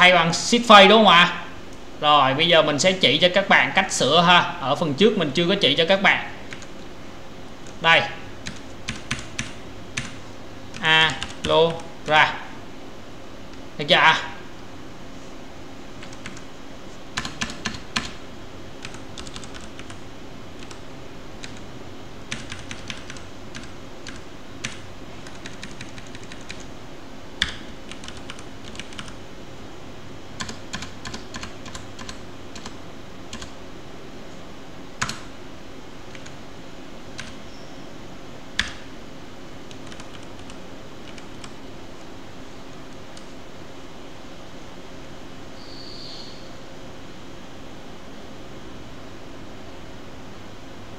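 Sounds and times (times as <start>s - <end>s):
low background hum: 0.0s - 50.9s
keyboard typing: 6.5s - 6.8s, 8.4s - 12.2s, 16.0s - 16.5s, 17.2s - 18.2s, 18.8s - 20.0s, 20.6s - 20.8s, 21.4s - 21.6s, 22.3s - 26.7s, 27.4s - 29.2s, 30.4s - 33.6s, 35.0s - 35.3s, 36.1s - 36.4s, 37.1s - 37.4s, 38.6s - 38.8s, 39.7s - 41.6s.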